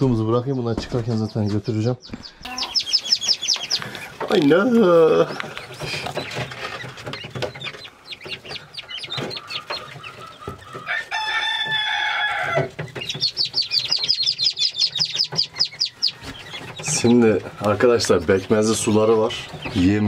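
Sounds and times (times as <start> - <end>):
chicks peeping: 0.0 - 20.0
rooster crowing: 10.2 - 12.7.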